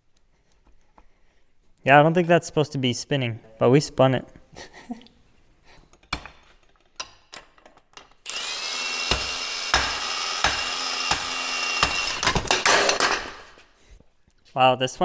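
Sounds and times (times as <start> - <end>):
impact wrench whining: 8.0 - 13.7
impact wrench knocking: 8.7 - 13.3.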